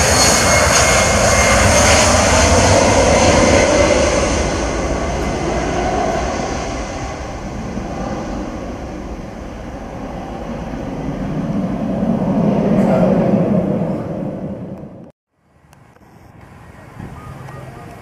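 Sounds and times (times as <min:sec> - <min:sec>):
jet engine roar: 0:00.0 - 0:15.2.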